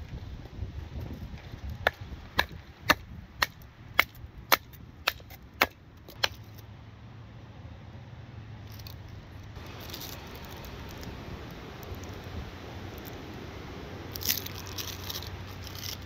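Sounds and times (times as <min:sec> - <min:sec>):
low steady rumble: 0:00.0 - 0:16.0
sharp hammering or chopping blows: 0:01.7 - 0:06.6.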